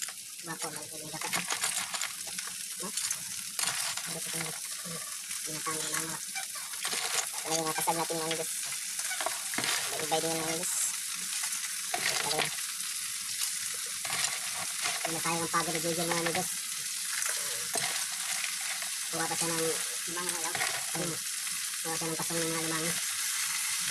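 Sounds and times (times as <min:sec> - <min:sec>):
crabs sizzling in hot oil: 0:00.0 - 0:23.9
spatula scraping a pan: 0:02.9 - 0:05.1, 0:05.7 - 0:10.9, 0:11.9 - 0:12.6, 0:13.8 - 0:16.4, 0:17.1 - 0:21.2.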